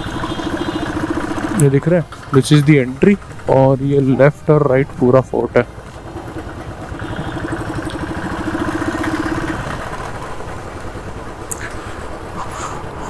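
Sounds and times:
motorcycle engine running: 0:00.0 - 0:12.3.

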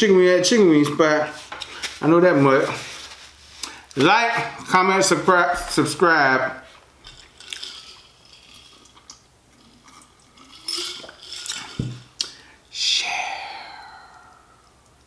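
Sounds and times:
sipping from a glass jar: 0:07.1 - 0:12.5.

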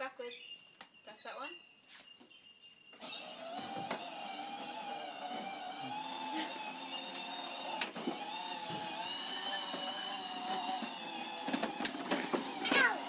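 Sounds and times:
toy car electric motor whining: 0:03.0 - 0:13.0.

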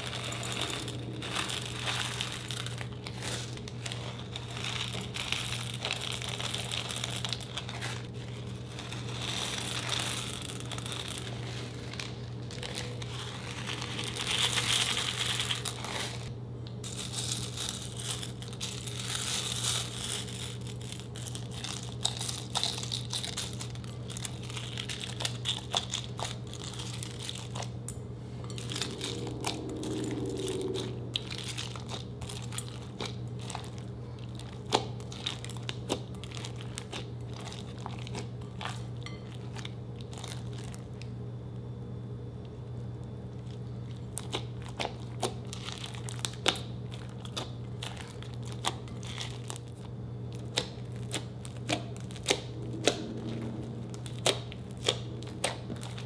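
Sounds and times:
beads pattering onto slime: 0:00.0 - 0:27.7
plastic bags crinkling: 0:00.0 - 0:41.0, 0:43.4 - 0:56.0
steady low hum: 0:00.0 - 0:56.0.

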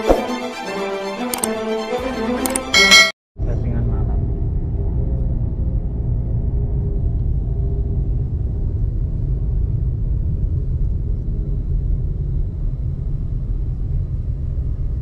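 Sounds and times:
vehicle engine and road noise: 0:03.4 - 0:15.0.

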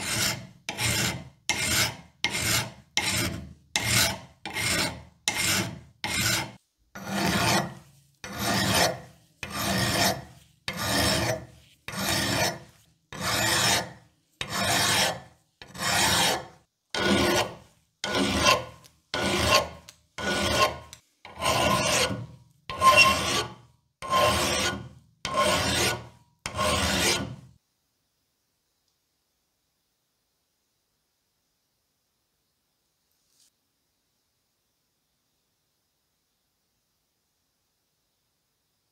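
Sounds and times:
file rasping on iron: 0:00.0 - 0:27.5.

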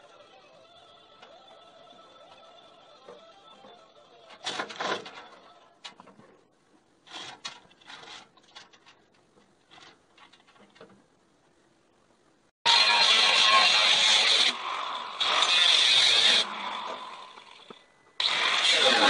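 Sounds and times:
angle grinder: 0:12.7 - 0:19.0.

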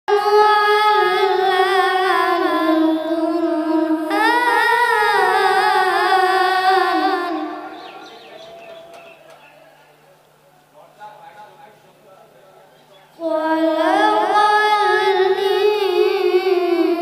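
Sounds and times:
boy chanting melodically: 0:00.1 - 0:09.7, 0:13.0 - 0:17.0.

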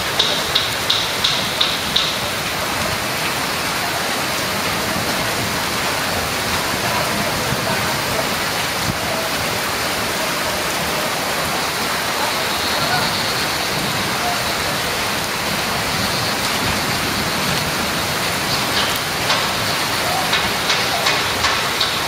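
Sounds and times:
rain falling: 0:00.0 - 0:22.0.

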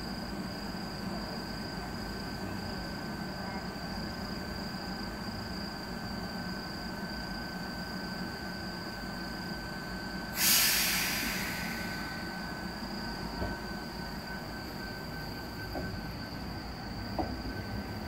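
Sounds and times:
electric train humming: 0:04.1 - 0:18.0.

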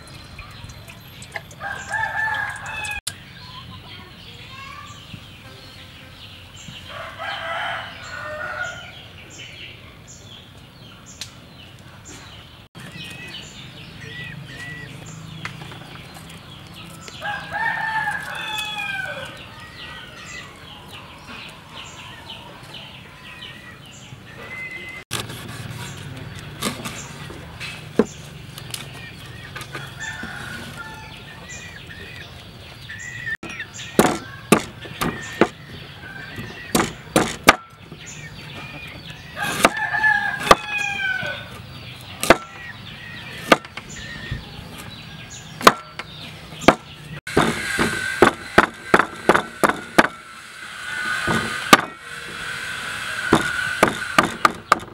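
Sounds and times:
rooster crowing: 0:01.6 - 0:03.0, 0:06.9 - 0:09.0, 0:17.0 - 0:19.4, 0:29.7 - 0:31.4, 0:39.4 - 0:41.5
cleaver chopping on wooden board: 0:34.0 - 0:35.6, 0:36.7 - 0:37.6, 0:39.4 - 0:39.8, 0:42.2 - 0:42.5, 0:43.4 - 0:43.8, 0:45.6 - 0:46.0, 0:46.6 - 0:50.1.

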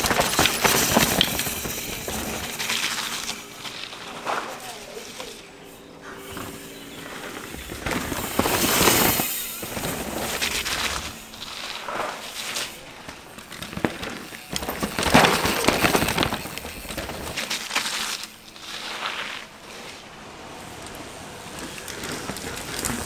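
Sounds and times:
bikes clattering: 0:00.0 - 0:23.0
tyres crunching over stones: 0:00.0 - 0:23.0.

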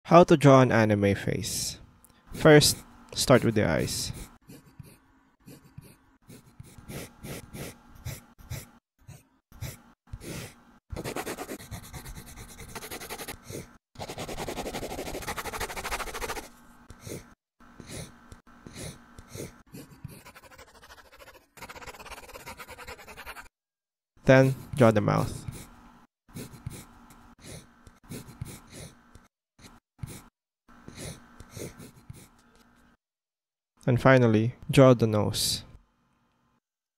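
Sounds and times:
stylus scratching on tablet: 0:04.1 - 0:08.7, 0:10.9 - 0:16.5, 0:19.8 - 0:23.5, 0:26.4 - 0:27.0, 0:28.1 - 0:28.7, 0:30.9 - 0:32.7.

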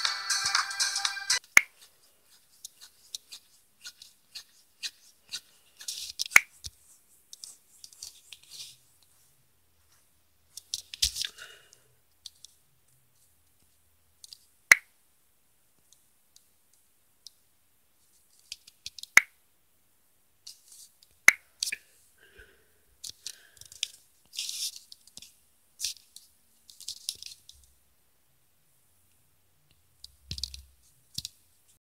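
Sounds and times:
faint rustling and scraping: 0:01.6 - 0:14.5, 0:20.4 - 0:21.1.

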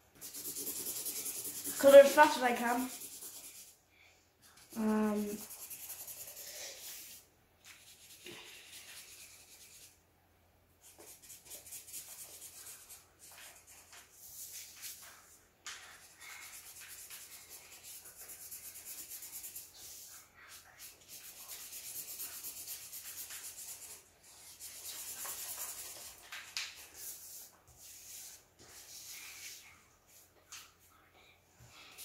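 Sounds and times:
marker scribbling on paper: 0:00.1 - 0:03.8, 0:04.4 - 0:10.0, 0:10.8 - 0:30.3.

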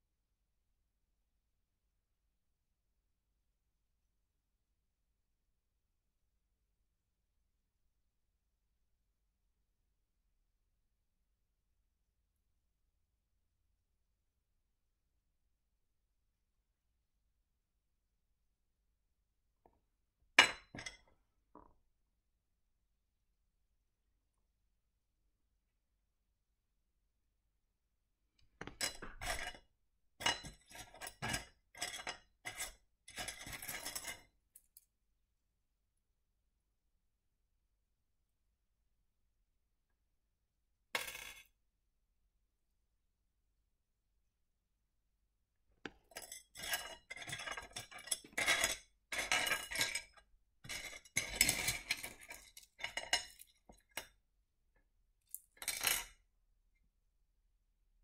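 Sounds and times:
stones clinking in a dish: 0:20.4 - 0:21.7, 0:28.6 - 0:34.8, 0:41.0 - 0:41.5, 0:45.9 - 0:54.2.

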